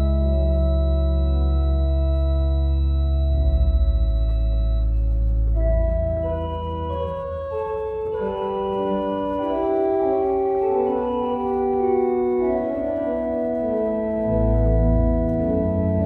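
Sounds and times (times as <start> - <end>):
church organ chords: 0.0 - 16.0.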